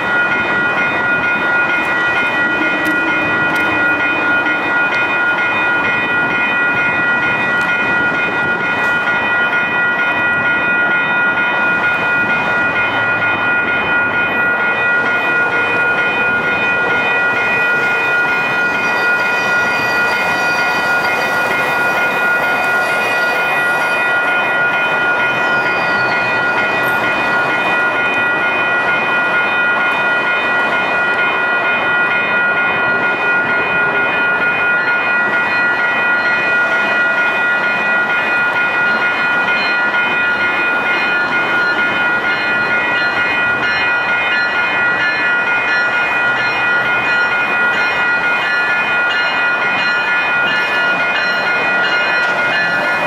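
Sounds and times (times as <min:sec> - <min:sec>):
crossing bell ringing: 0:00.0 - 0:53.0
train wheel squeal: 0:17.0 - 0:24.3, 0:25.0 - 0:27.7.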